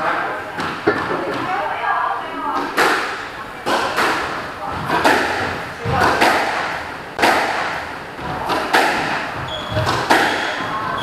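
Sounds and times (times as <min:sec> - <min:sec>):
squash ball cracks: 0:02.6 - 0:10.8.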